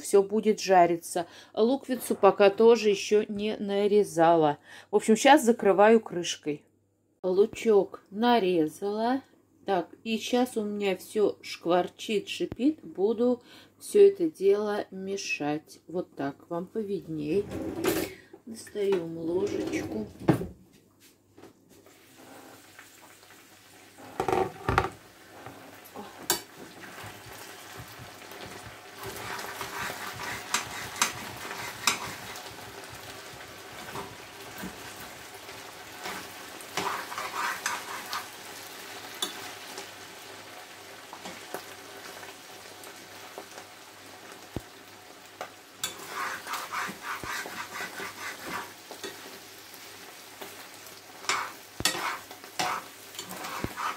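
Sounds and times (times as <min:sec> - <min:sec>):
potatoes sizzling in frying pan: 0:21.9 - 0:53.9
spoon scraping and stirring: 0:29.0 - 0:32.5, 0:36.0 - 0:38.4, 0:45.8 - 0:49.2, 0:51.2 - 0:53.9.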